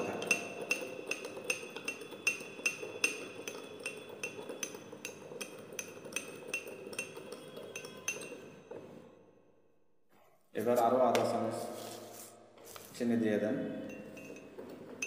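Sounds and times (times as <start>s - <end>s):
teaspoon clinking in teacup: 0.0s - 8.6s, 13.9s - 15.0s.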